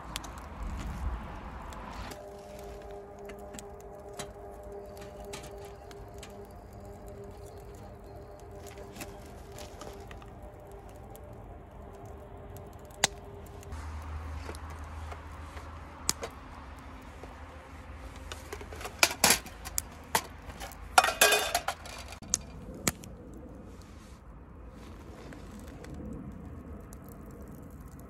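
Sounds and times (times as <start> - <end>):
metal tins clinking: 18.3 - 22.2.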